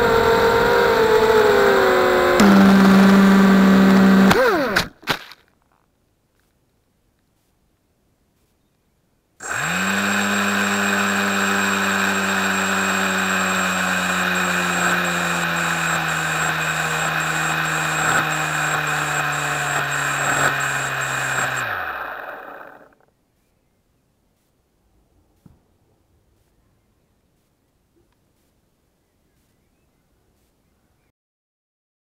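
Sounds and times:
drone motors humming: 0.0s - 4.8s, 9.4s - 23.0s.

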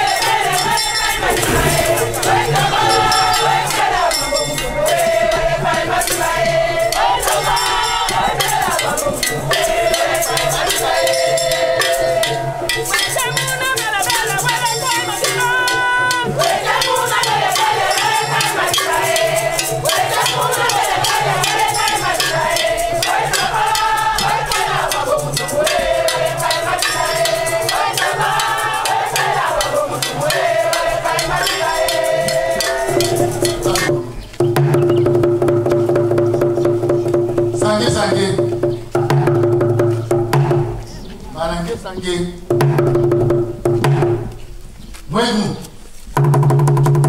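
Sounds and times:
shaken rattles: 0.0s - 5.2s
voices singing together: 0.0s - 43.2s.

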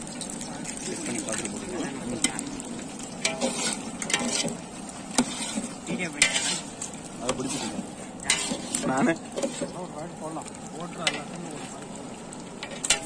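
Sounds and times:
chicken sizzling: 0.0s - 13.0s
ladle knocking and scraping pot: 3.2s - 9.8s, 12.6s - 13.0s.

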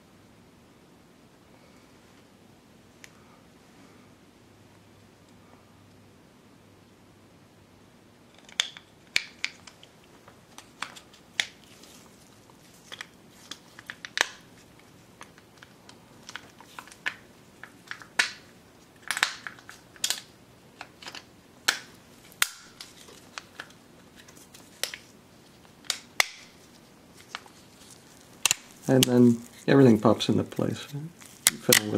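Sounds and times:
plastic parts clicking and snapping: 10.6s - 11.7s, 15.2s - 18.4s, 19.0s - 25.1s, 28.4s - 29.6s, 31.2s - 31.9s.

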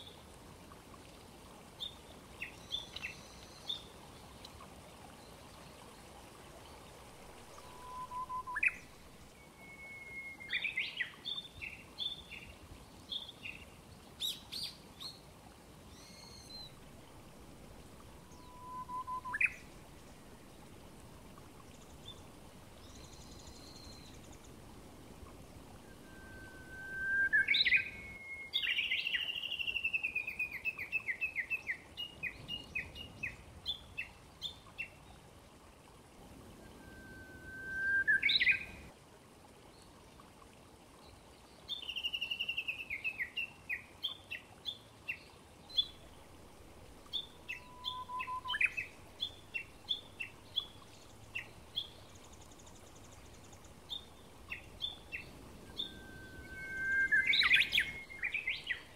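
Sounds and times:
bush warbler whistled song: 7.5s - 12.5s, 15.9s - 16.8s, 18.2s - 19.7s, 22.8s - 24.4s, 25.8s - 34.9s, 36.6s - 38.9s, 41.7s - 46.0s, 47.1s - 58.9s.

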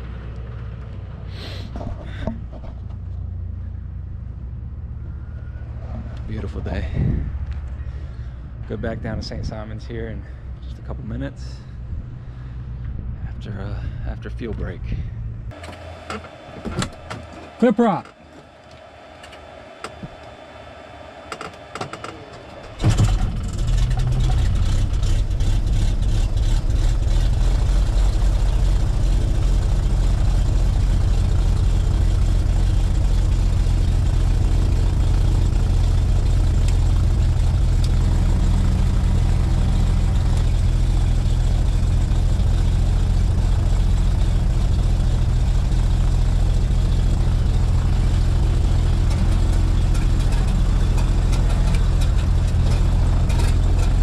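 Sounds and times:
aircraft engine idling: 15.2s - 54.0s.

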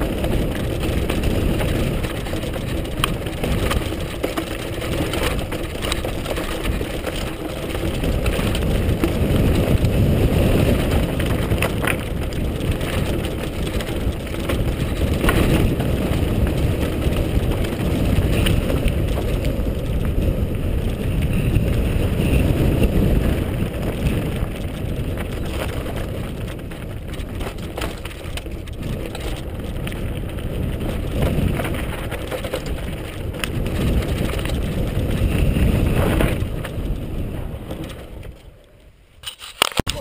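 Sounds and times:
wind buffeting microphone: 0.0s - 38.6s
bike tyres crunching over gravel: 0.0s - 40.0s
sharp clicks and knocks: 0.1s - 9.7s.

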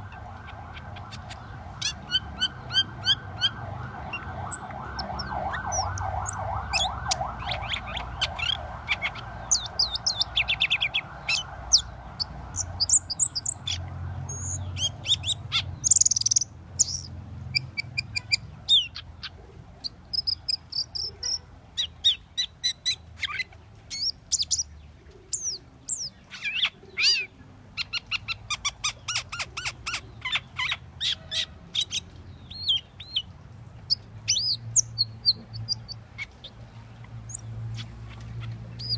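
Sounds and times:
starling chirps and whistles: 1.0s - 19.0s, 33.9s - 36.3s.

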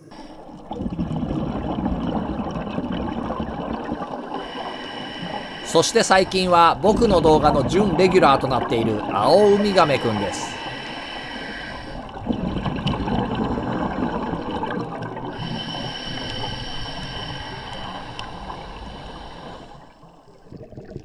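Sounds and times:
underwater bubbling and gurgling: 0.0s - 21.0s.

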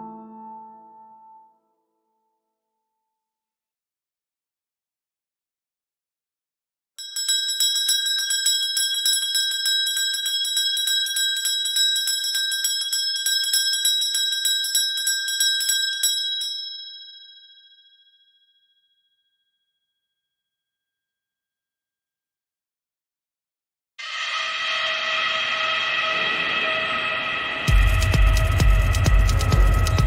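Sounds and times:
bell rung rapidly: 7.0s - 18.0s, 27.6s - 30.0s.

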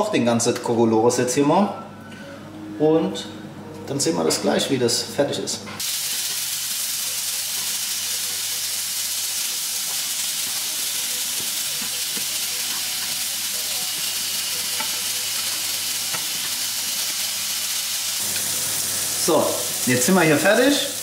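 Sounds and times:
chicken sizzling in a pan: 5.8s - 21.0s.

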